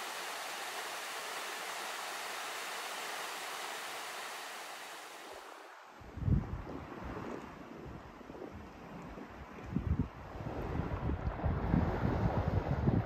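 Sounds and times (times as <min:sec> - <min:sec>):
wind buffeting microphone: 0:06.0 - 0:13.0.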